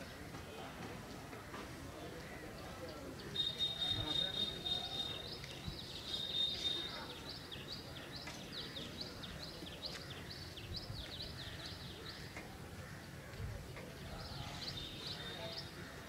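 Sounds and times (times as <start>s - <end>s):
background murmur: 0.0s - 16.0s
bird calling: 3.4s - 7.1s.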